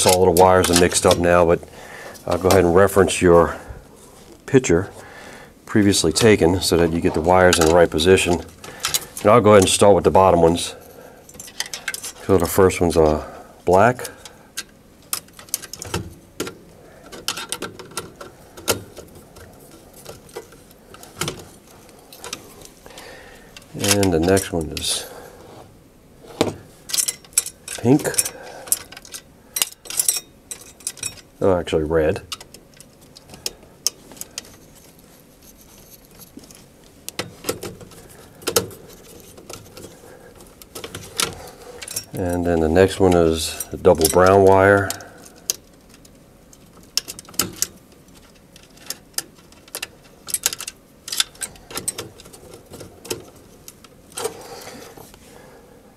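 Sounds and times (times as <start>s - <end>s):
plastic and wire handling: 10.5s - 31.3s, 32.2s - 55.2s.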